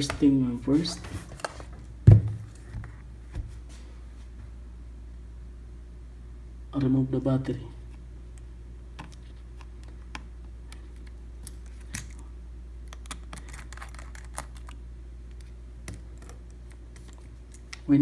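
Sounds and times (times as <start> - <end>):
steady low hum: 0.0 - 18.0
small tool clicking and scratching: 12.9 - 14.8.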